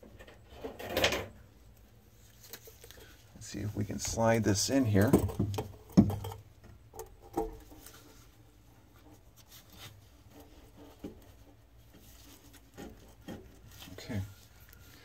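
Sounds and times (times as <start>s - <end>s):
rubbing and scraping: 7.1s - 15.0s.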